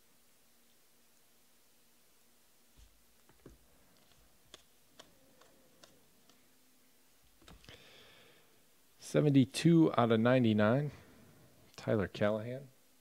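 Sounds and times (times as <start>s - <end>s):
cards rustling together: 2.8s - 6.6s
trading cards clicking: 3.3s - 6.4s.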